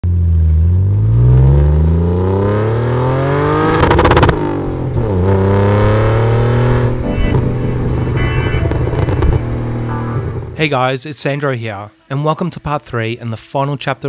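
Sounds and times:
car engine accelerating: 0.0 - 10.6
exhaust crackles: 0.0 - 10.7.

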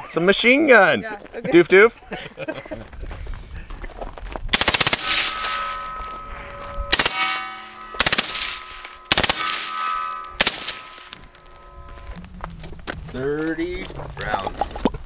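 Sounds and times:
suppressed automatic rifle bursts: 4.5 - 5.3, 6.9 - 7.2, 8.0 - 9.6
steel target ringing: 4.6 - 12.2.

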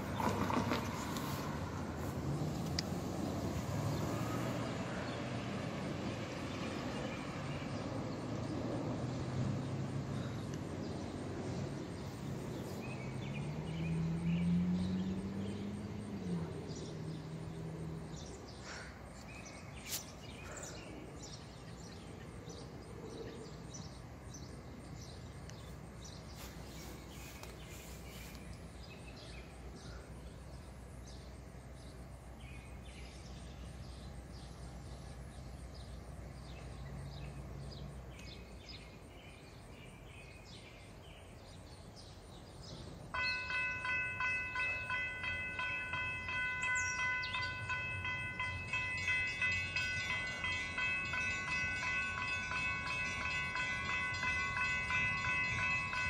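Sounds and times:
motor vehicle pulling away: 0.0 - 7.6, 12.5 - 18.4.

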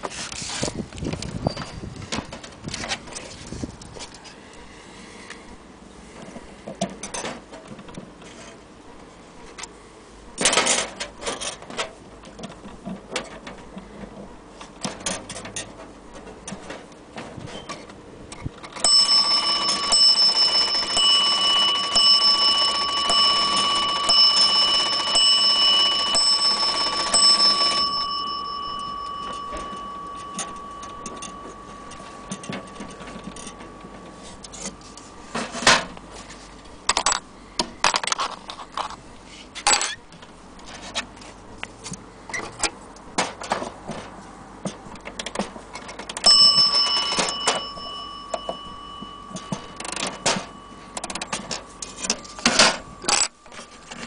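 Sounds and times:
wall clock striking: 18.8 - 34.8, 46.2 - 53.1.

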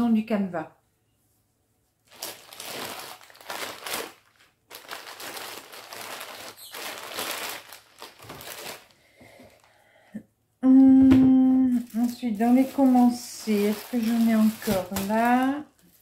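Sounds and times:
packaging crinkling and rustling: 2.0 - 9.8, 11.7 - 16.0.

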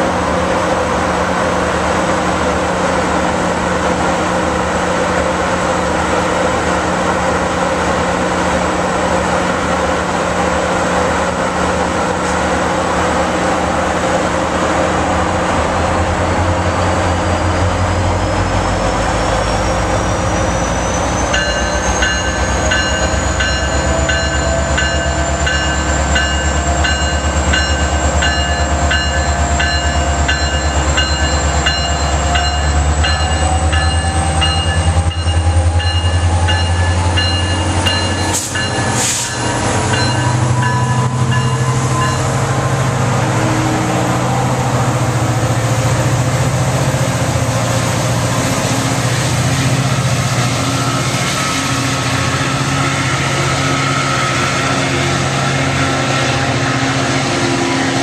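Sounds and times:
diesel locomotive engine drone: 0.0 - 58.0
bell ringing: 21.4 - 42.4.

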